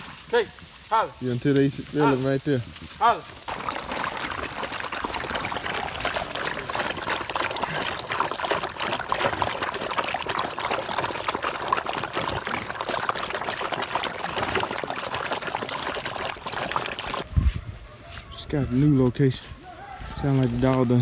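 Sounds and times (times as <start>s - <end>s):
dogs lapping water: 3.4s - 17.2s.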